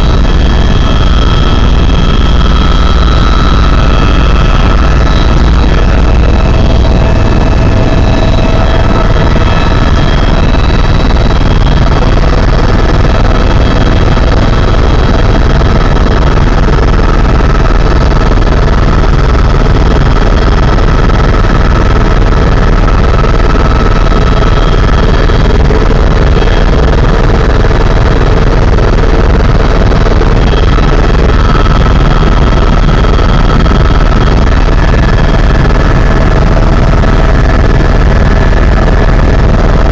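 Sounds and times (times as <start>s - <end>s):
faint whines: 0.0s - 15.9s
helicopter rotor and turbine drone: 0.0s - 39.9s.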